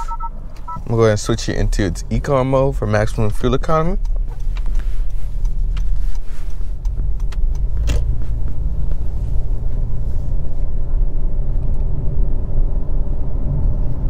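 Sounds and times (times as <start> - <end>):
car engine and tyre rumble: 0.0 - 14.0
sharp clicks: 3.9 - 8.6.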